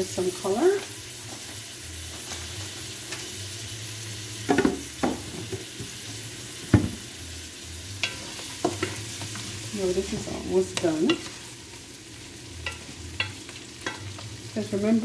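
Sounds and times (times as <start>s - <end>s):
butter sizzling in a pot: 0.0s - 15.0s
knocks of pot or utensils: 4.5s - 5.6s, 6.7s - 7.0s.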